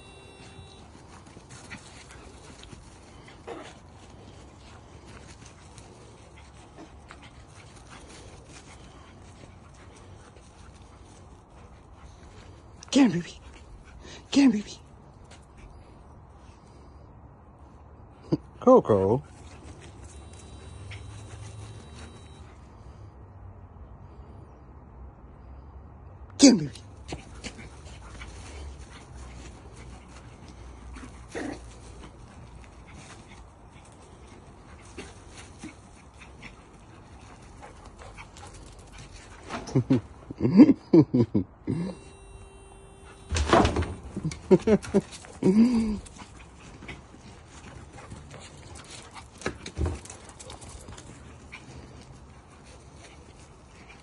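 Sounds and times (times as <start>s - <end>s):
paws running over grass: 0.0s - 12.8s, 26.9s - 40.2s, 44.4s - 54.0s
dog panting: 27.1s - 39.7s.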